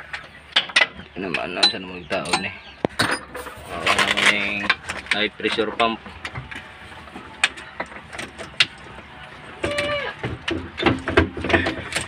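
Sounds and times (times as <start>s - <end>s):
hand tools clinking on metal: 0.6s - 6.4s.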